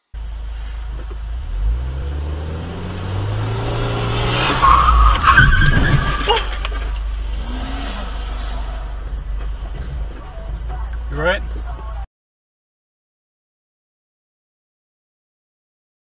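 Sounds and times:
car engine revving: 0:00.2 - 0:12.0
tyres squealing in a skid: 0:04.0 - 0:09.0.

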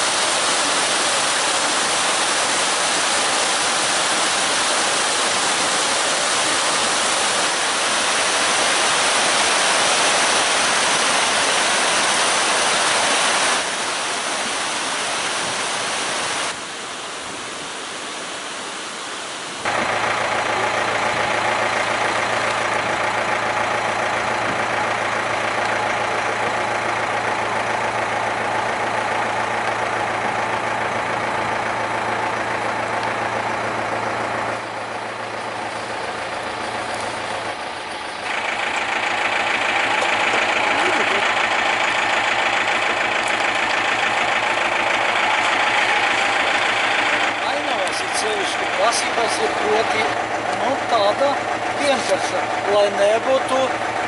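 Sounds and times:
rushing water: 0:00.0 - 0:54.0
steady engine hum: 0:19.6 - 0:54.0.

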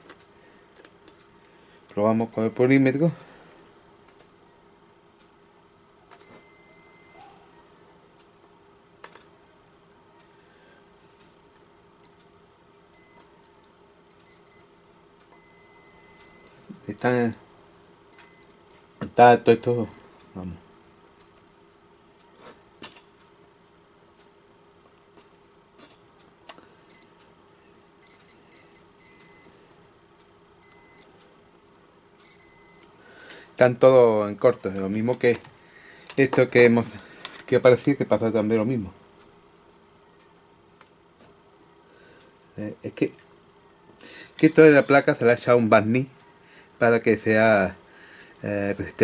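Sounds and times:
multimeter continuity beeping: 0:02.1 - 0:03.2, 0:06.2 - 0:07.3, 0:12.9 - 0:13.3, 0:14.1 - 0:17.4, 0:18.1 - 0:18.6, 0:19.2 - 0:20.1, 0:26.9 - 0:27.1, 0:28.0 - 0:29.6, 0:30.6 - 0:31.2, 0:32.2 - 0:32.9.

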